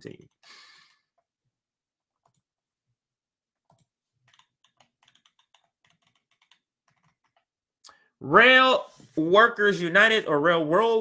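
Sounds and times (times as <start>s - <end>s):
computer mouse clicking: 2.2s - 2.5s, 3.7s - 7.5s.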